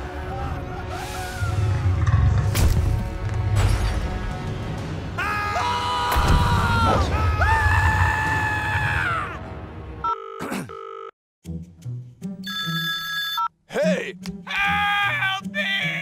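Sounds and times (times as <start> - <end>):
electronic telephone ring: 10.0 - 11.1, 12.5 - 13.5.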